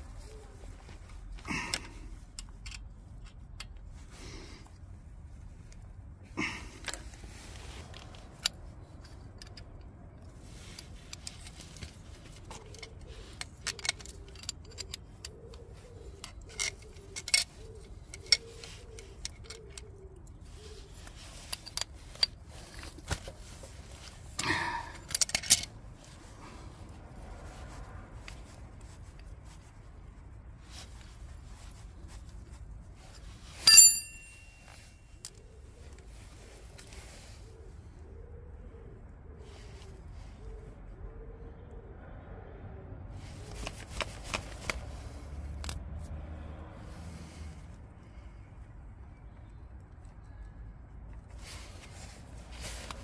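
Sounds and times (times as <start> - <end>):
metal tools clinking and scraping: 6.4 - 26.4, 33.0 - 35.4.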